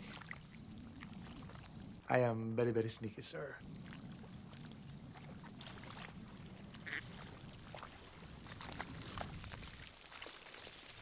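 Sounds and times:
ducks quacking faintly: 6.6 - 7.4.

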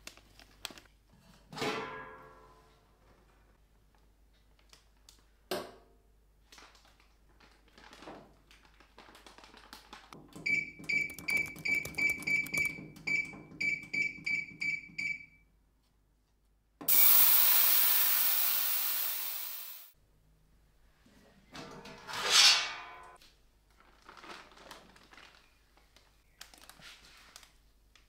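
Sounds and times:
short high keypad beeps: 10.5 - 15.3
ultrasonic cleaner hissing: 16.9 - 19.9.

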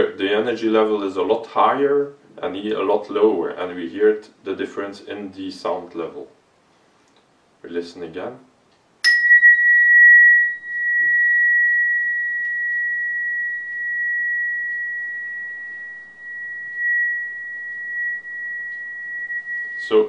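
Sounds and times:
mallet striking tuning fork: 9.0 - 20.0
tuning fork ringing high tone: 9.0 - 20.0.

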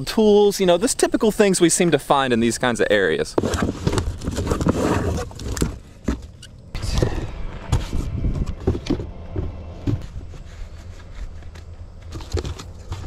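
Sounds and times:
rummaging through cardboard box: 3.3 - 6.4, 10.0 - 13.0.

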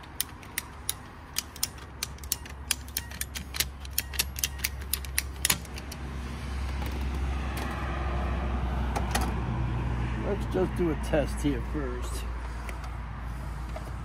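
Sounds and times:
ratcheting pipe cutter clicking: 0.0 - 6.0.

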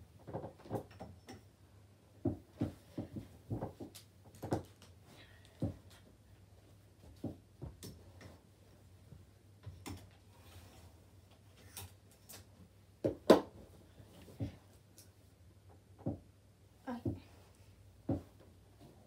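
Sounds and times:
clothes being handled: 16.9 - 19.0.

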